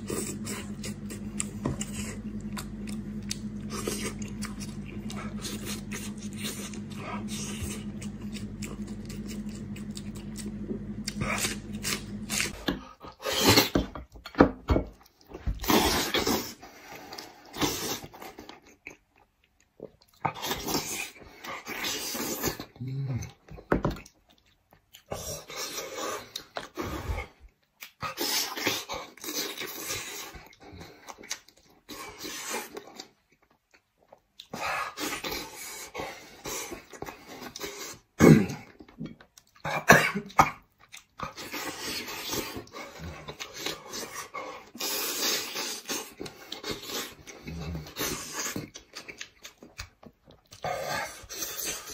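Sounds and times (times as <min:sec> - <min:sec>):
sucking and slurping: 0:00.0 - 0:13.8, 0:41.0 - 0:49.6
wet chewing: 0:00.0 - 0:51.9.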